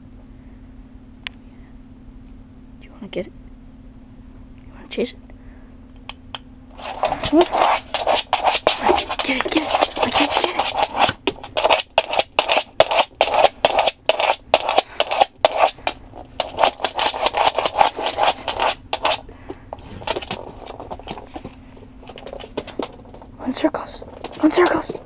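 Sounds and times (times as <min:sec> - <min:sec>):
dog claws scratching wooden floor: 0:06.7 - 0:25.0.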